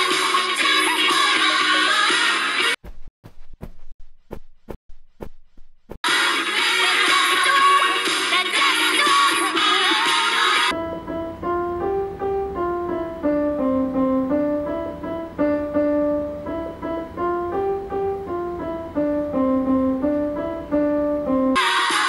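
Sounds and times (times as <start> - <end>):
digital piano tune: 10.7 - 21.7.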